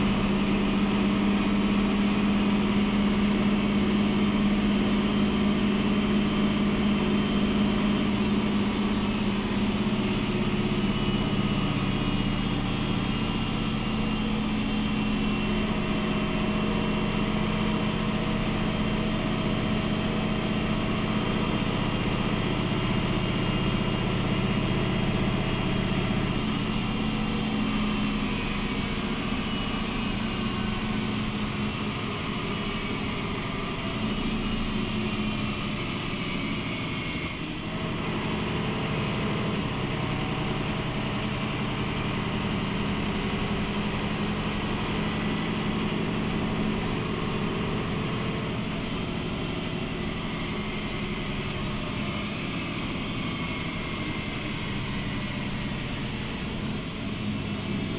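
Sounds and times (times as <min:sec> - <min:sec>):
bus diesel engine drone: 0:00.0 - 0:57.9.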